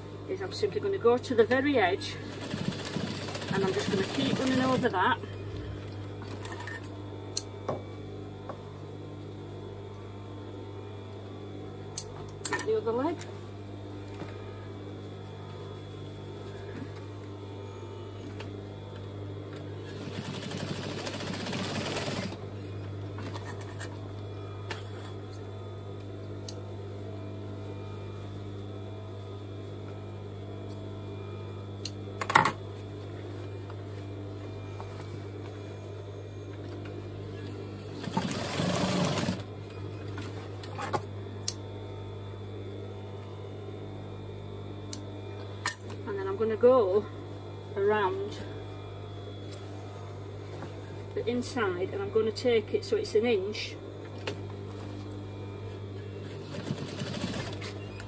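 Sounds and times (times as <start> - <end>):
sewing machine motor humming: 2.2 - 6.0, 19.8 - 22.4, 37.9 - 39.5, 56.2 - 58.0.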